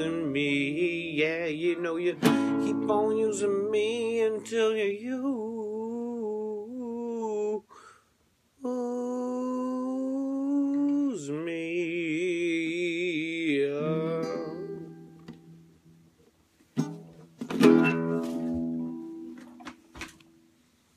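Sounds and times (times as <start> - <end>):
acoustic guitar: 0.0 - 6.8, 10.3 - 20.6
man singing held note: 8.6 - 14.8.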